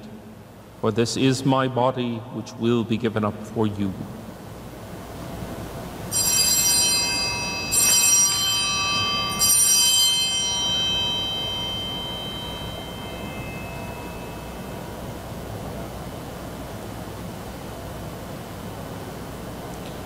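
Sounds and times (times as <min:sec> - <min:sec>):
altar bells ringing: 0:06.1 - 0:15.6.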